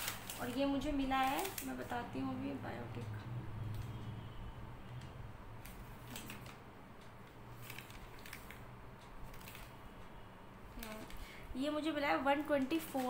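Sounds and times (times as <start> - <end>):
paper rustling: 0.0 - 2.0, 12.5 - 13.0.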